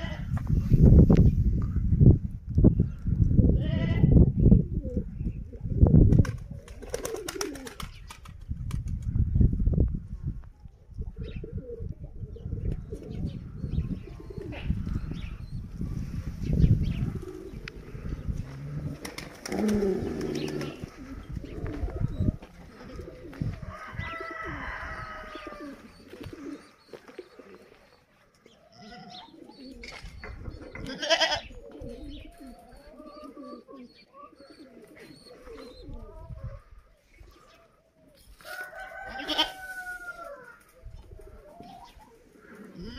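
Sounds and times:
pigeons cooing: 0:02.9 - 0:08.2, 0:10.9 - 0:42.9
farm animal calls: 0:16.9 - 0:42.9.

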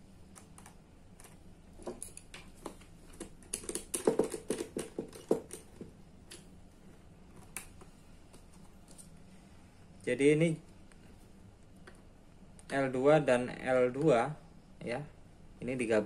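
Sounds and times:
wires clicking against plastic housings: 0:00.3 - 0:06.5.

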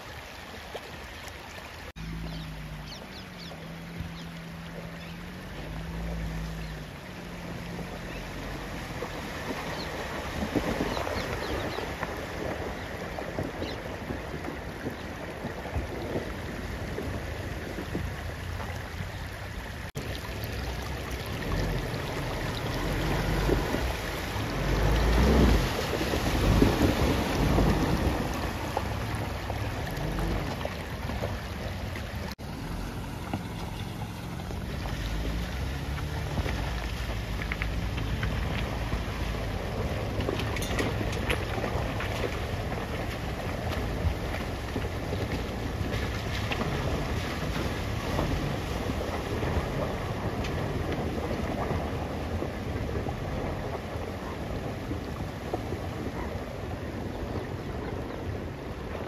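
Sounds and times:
tyres churning through mud: 0:01.9 - 0:59.0
wind on microphone: 0:08.9 - 0:20.0
suv engine under load: 0:20.0 - 0:59.0.

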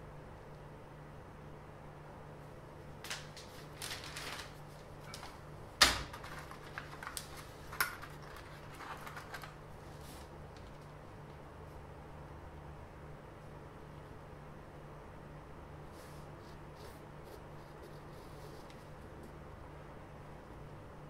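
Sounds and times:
faint steady hum: 0:00.0 - 0:21.0
ruler rustling and clicking on paper: 0:06.0 - 0:11.0.

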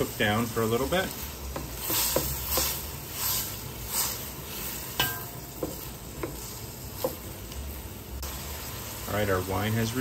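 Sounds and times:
wooden spoon scraping a pan: 0:00.0 - 0:07.4
vegetables sizzling in a pan: 0:00.0 - 0:10.0.

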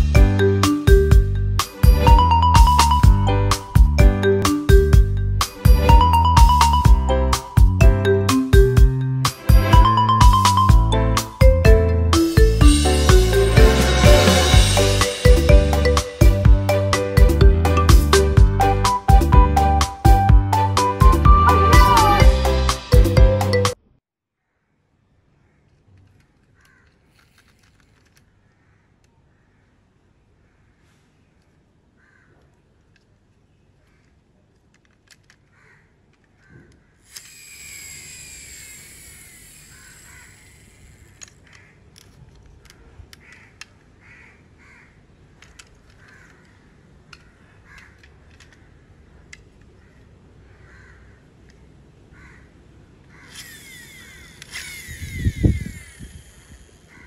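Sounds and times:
plastic toy truck clicks: 0:25.6 - 0:28.3, 0:34.0 - 0:43.9, 0:45.3 - 0:48.6, 0:49.2 - 0:49.8
birds calling: 0:39.6 - 0:57.0.

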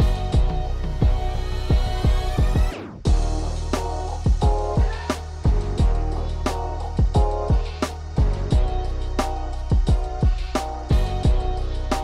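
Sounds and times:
kick drum thumps: 0:00.0 - 0:03.3, 0:04.2 - 0:06.0, 0:07.0 - 0:08.8, 0:09.7 - 0:11.5.

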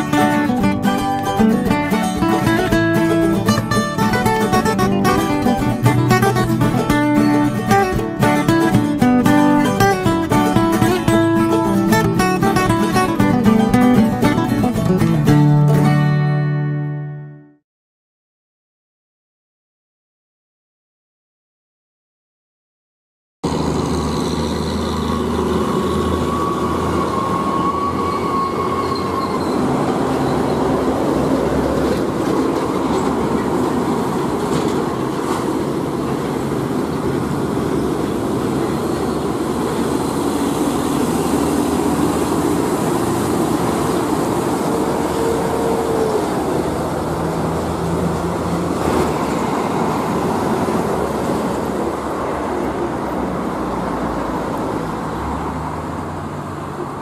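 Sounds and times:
tyre and road noise: 0:00.0 - 0:17.0, 0:23.4 - 0:57.0
diesel truck engine accelerating: 0:00.0 - 0:17.3, 0:23.4 - 0:57.0
second truck engine: 0:23.4 - 0:57.0.

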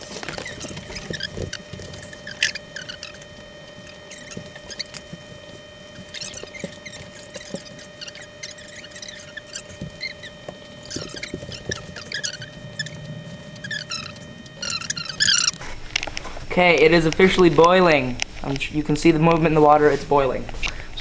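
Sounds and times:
faint steady hum: 0:00.0 - 0:21.0
short squeaky chirps: 0:00.3 - 0:05.1, 0:06.0 - 0:15.6.

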